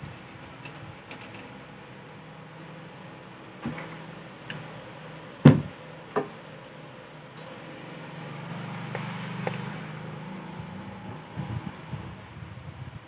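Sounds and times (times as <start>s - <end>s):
sharp knocks: 5.4s - 6.3s.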